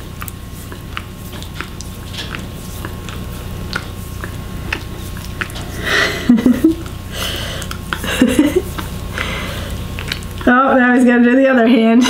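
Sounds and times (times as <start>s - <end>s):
pet licking wet smacking clicks: 0.0s - 10.6s.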